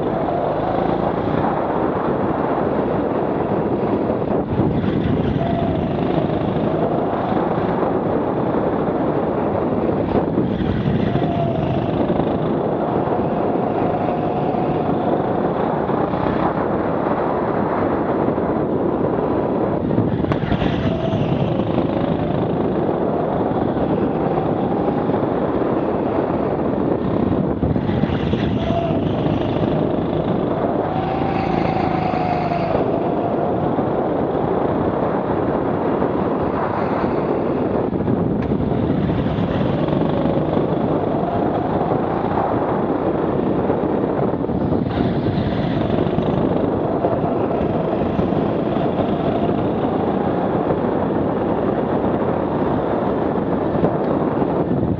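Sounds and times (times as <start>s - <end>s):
go-kart engine revving: 0.0s - 3.0s, 3.7s - 9.0s, 9.8s - 16.6s, 20.0s - 34.9s, 38.4s - 43.6s, 44.5s - 51.2s
rush of air and tyre noise: 0.0s - 54.9s.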